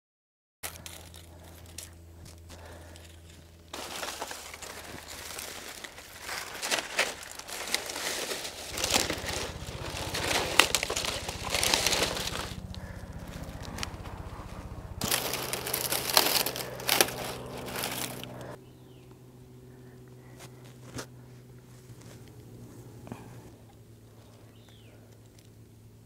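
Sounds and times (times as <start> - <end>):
dry leaves rustling and crackling: 0.7 - 18.6.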